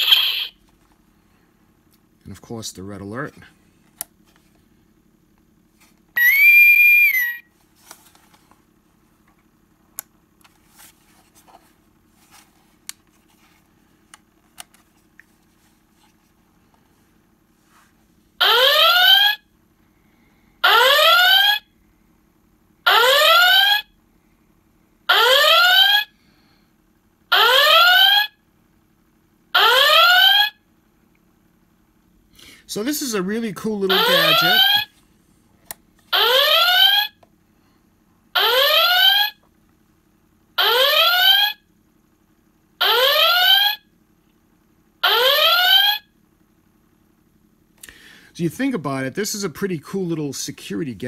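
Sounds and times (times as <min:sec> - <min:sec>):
high steady electronic tone: 0:00.0 - 0:00.6, 0:06.2 - 0:07.5, 0:33.9 - 0:34.9
rising alert klaxon whoops: 0:06.2 - 0:07.5, 0:33.9 - 0:34.9, 0:45.0 - 0:46.0.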